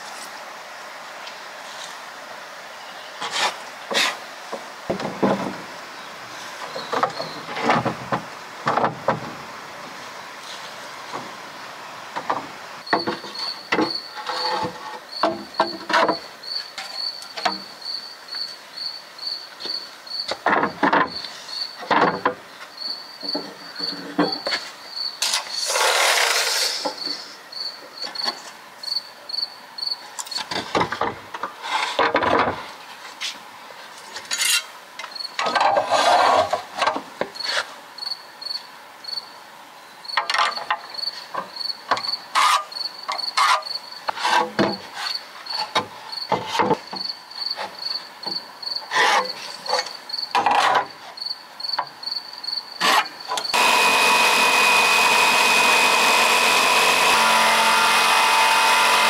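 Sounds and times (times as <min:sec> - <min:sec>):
cricket chirping: 0:12.9 - 0:21.9, 0:22.7 - 0:25.7, 0:26.9 - 0:30.4, 0:34.4 - 0:35.4, 0:37.4 - 0:39.4, 0:40.0 - 0:44.1, 0:44.7 - 0:50.4, 0:51.2 - 0:53.6
rasping scrapes: 0:25.5 - 0:26.9.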